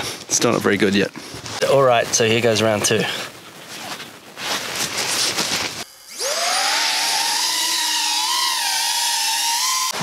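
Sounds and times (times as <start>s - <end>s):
drone motors whining: 5.8s - 10.0s.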